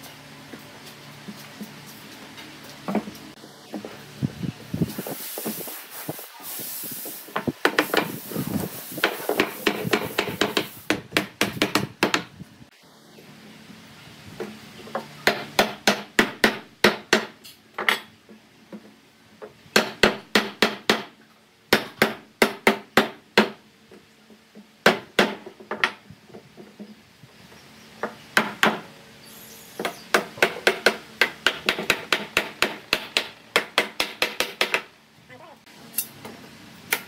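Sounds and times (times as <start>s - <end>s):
hammer striking wooden frame: 9.0s - 12.3s, 15.2s - 17.4s, 19.7s - 21.1s, 21.7s - 23.6s, 24.8s - 26.0s, 28.0s - 28.9s, 29.8s - 34.9s.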